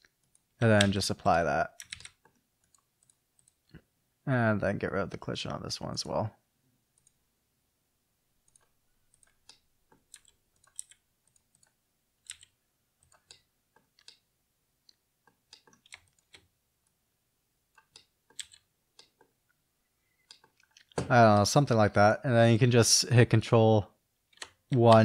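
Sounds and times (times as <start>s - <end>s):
computer keyboard and mouse clicks: 1.8s - 3.7s, 7.0s - 7.2s, 8.4s - 14.3s, 14.9s - 16.5s, 17.7s - 19.3s, 20.2s - 21.1s, 24.3s - 25.0s.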